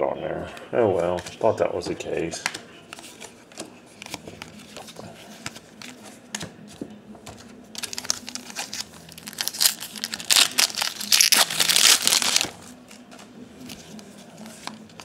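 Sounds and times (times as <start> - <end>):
foil wrapper crinkling and tearing: 7.8 - 12.8.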